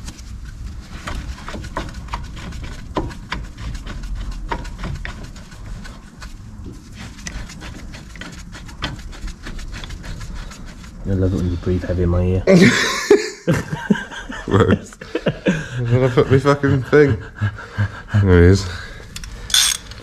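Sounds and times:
metallic clicks and knocks of tools: 19.1 - 20.0.

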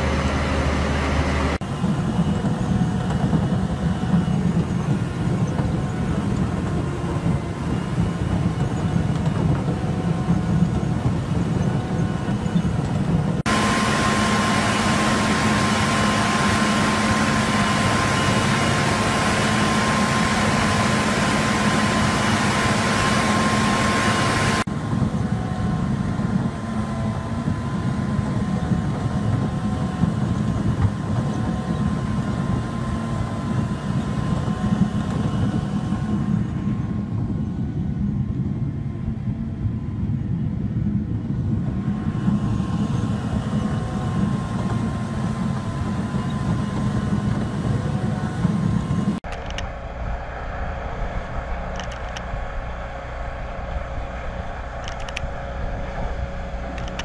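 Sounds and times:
chain trencher engine and chain: 0.0 - 24.7, 51.4 - 57.0
track-mounted trencher whine: 0.0 - 57.0.

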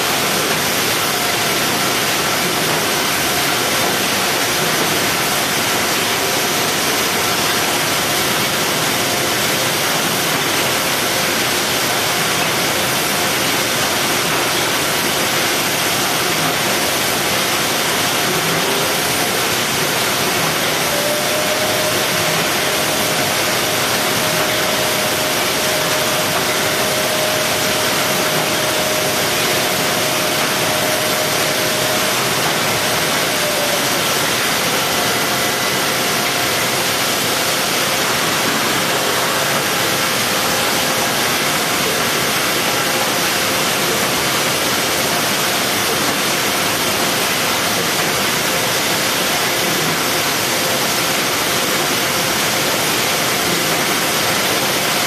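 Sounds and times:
machinery din: 18.3 - 41.8.

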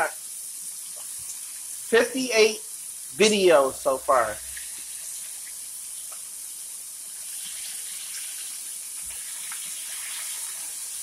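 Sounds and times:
fish deep-frying in oil: 0.0 - 11.0.

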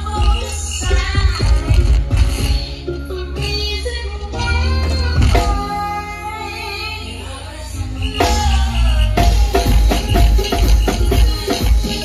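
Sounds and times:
drums playing steady beat: 0.0 - 2.7, 4.8 - 6.0, 8.1 - 12.0
live band through loudspeakers: 0.0 - 12.0.

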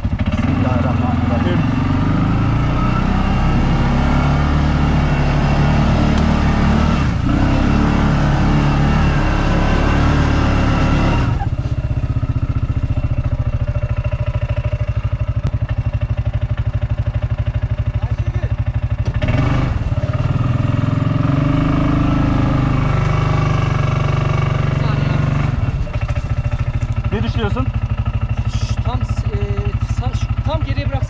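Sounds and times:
engine idling: 0.0 - 21.4, 22.2 - 31.0
off-road vehicle engine revving: 0.0 - 31.0.

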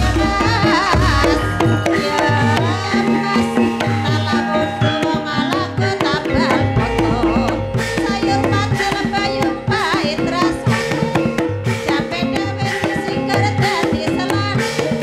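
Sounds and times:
hand drums beating: 0.0 - 15.0
held ringing metallic notes: 0.0 - 15.0
high wavering melody: 0.0 - 15.0.

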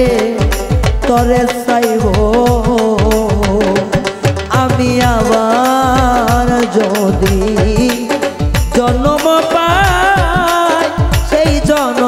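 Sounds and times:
drum beating steady rhythm: 0.0 - 12.0
person singing: 0.0 - 12.0.

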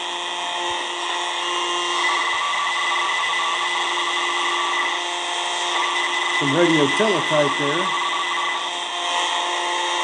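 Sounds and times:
radio teletype data tones: 1.9 - 8.9
radio static hiss: 5.7 - 8.4.

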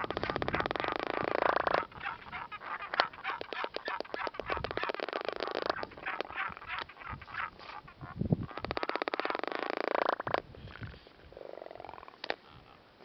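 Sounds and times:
albatrosses bill-clapping: 0.0 - 7.9, 8.5 - 9.4.

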